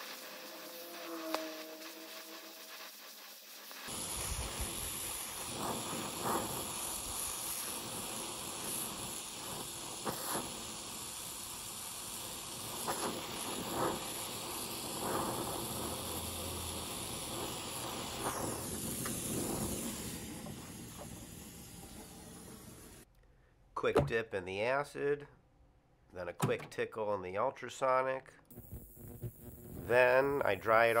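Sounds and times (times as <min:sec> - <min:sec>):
torch flame hissing: 0:00.0 - 0:23.1, 0:28.5 - 0:31.0
short flame pops: 0:03.6 - 0:23.1, 0:28.5 - 0:30.4.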